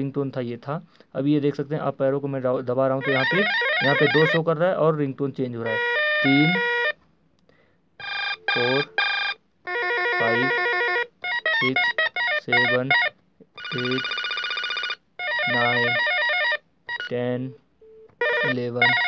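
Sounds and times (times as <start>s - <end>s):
electronic telephone ringtones: 3.0s - 4.4s, 5.7s - 6.9s, 8.0s - 19.0s.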